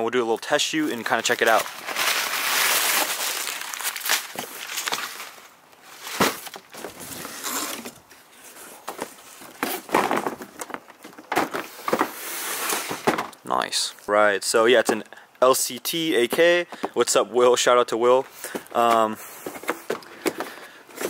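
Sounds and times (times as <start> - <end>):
cardboard box rustling and scraping: 1.1 - 13.3.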